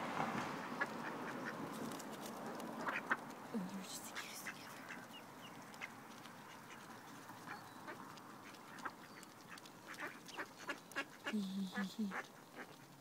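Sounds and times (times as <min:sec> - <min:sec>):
ducks quacking: 0:00.6 - 0:01.6, 0:02.8 - 0:03.3, 0:04.4 - 0:13.0
duck bills clicking: 0:02.6 - 0:03.4, 0:04.9 - 0:11.3.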